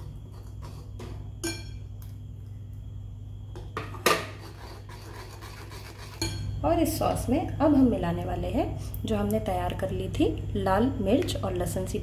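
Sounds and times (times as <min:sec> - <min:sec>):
low steady hum: 0:00.0 - 0:12.0
spoon clinking against pan: 0:01.4 - 0:01.8.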